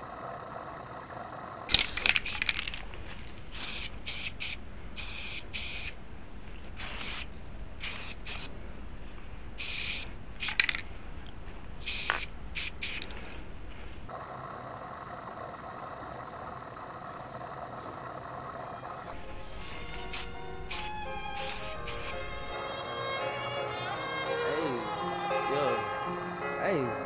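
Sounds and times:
spray paint can hissing: 1.7s - 2.8s, 3.5s - 6.0s, 6.8s - 8.5s, 9.6s - 10.8s, 11.8s - 13.2s, 19.2s - 22.5s.

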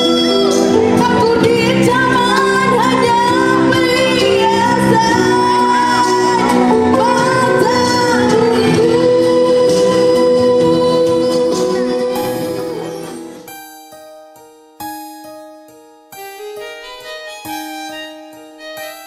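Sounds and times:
woman singing: 0.0s - 13.0s
instrumental accompaniment: 0.0s - 19.0s.

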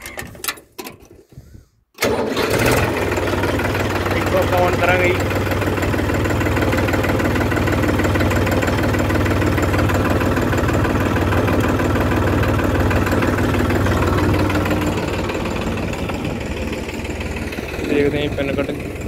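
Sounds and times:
tractor diesel engine running: 2.0s - 19.0s.

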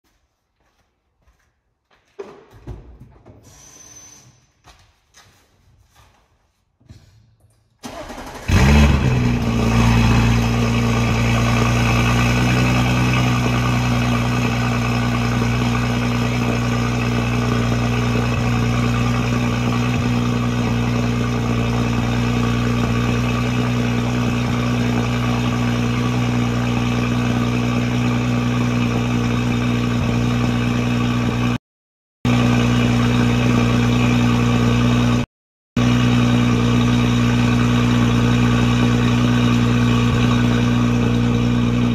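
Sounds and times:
car engine revving and idling: 7.9s - 31.6s, 32.3s - 41.9s.

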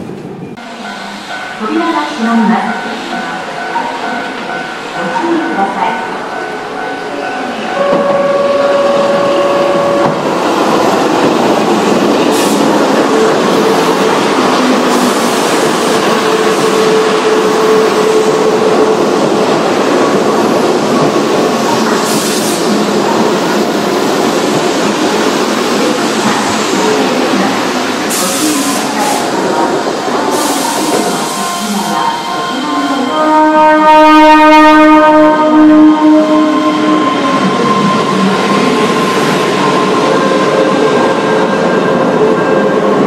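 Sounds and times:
electric train passing: 0.0s - 43.0s
train horn blast: 7.7s - 10.2s, 32.8s - 37.9s.

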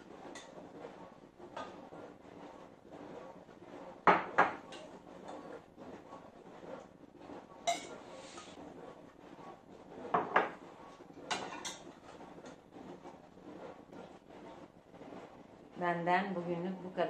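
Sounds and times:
ceramic plates clinking: 7.7s - 8.4s.

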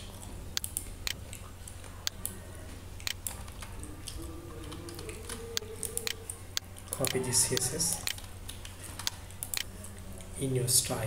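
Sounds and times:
low steady hum: 0.0s - 11.0s
computer keys clicking: 0.5s - 2.4s, 3.0s - 9.7s.

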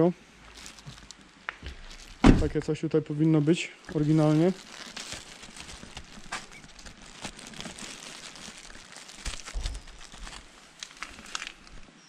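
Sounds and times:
plastic bag crinkling: 0.4s - 11.9s
low thump: 1.6s - 2.6s.

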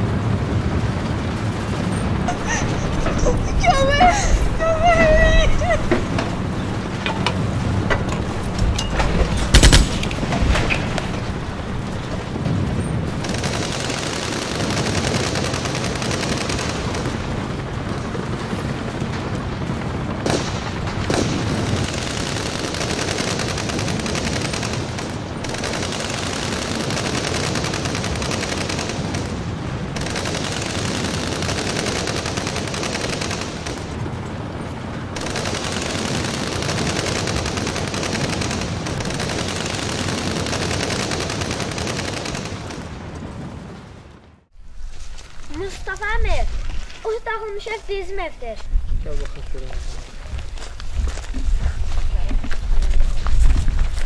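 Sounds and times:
automatic rifle fire: 9.2s - 11.1s, 13.2s - 17.4s, 20.2s - 34.0s, 35.2s - 42.9s.

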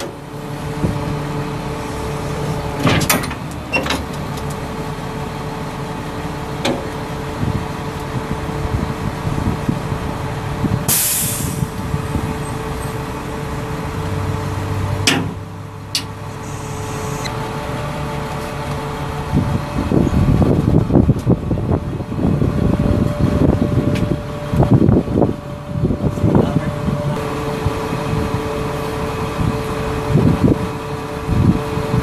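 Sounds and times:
diesel engine humming: 0.0s - 32.0s
hydraulic liftgate lowering: 1.9s - 4.6s, 15.0s - 17.4s
short hiss: 10.9s - 11.6s.

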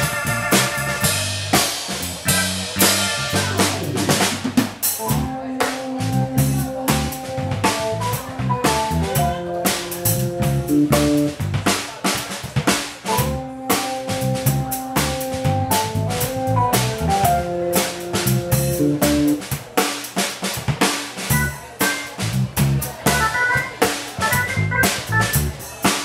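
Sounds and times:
electric organ chords: 0.0s - 11.7s, 13.1s - 19.4s, 21.3s - 22.2s, 23.1s - 25.6s
electric bass guitar: 0.0s - 11.9s, 13.1s - 19.5s, 21.3s - 25.7s
drum kit groove: 0.0s - 26.0s.

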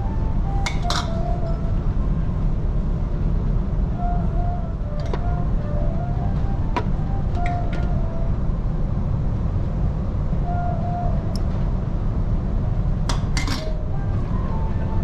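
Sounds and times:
ferry low rumble: 0.0s - 15.0s
metal tongs clinking on dishes: 0.6s - 1.2s, 13.4s - 13.8s.

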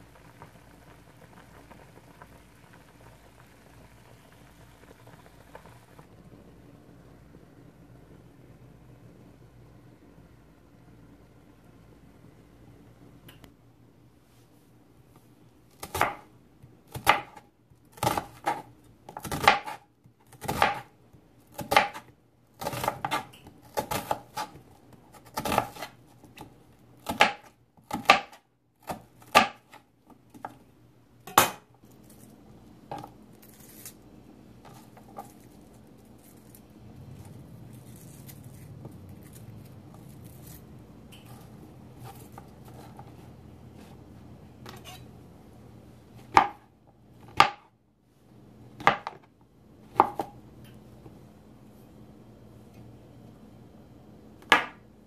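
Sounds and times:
knife slicing onion on cutting board: 15.8s - 16.3s, 16.9s - 20.9s, 21.5s - 30.6s, 38.0s - 44.0s, 44.6s - 45.1s, 49.9s - 50.4s.

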